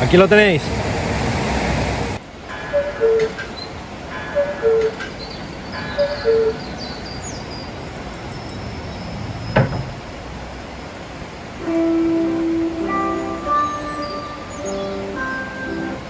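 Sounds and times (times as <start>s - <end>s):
cuckoo clock call: 2.5s - 7.5s, 11.6s - 16.0s.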